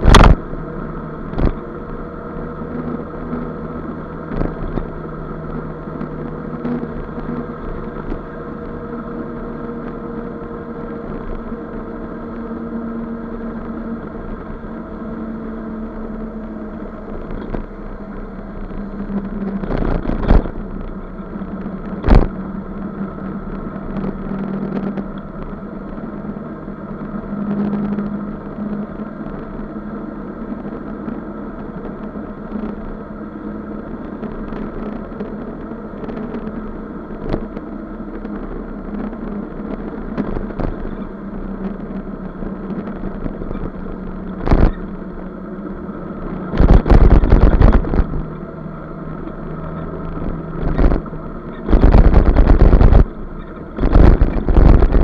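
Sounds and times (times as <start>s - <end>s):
loud rushes of noise: 0.0s - 55.0s
motor scooter engine running: 0.0s - 55.0s
road noise: 0.0s - 55.0s.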